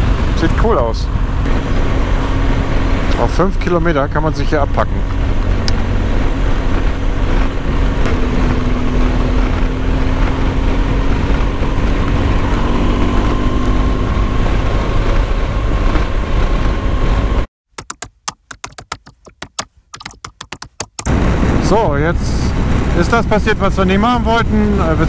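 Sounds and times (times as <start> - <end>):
motorcycle engine running: 0.0 - 17.5
wind rush on microphone: 0.0 - 17.5, 21.1 - 25.0
typing clicks: 17.8 - 21.1.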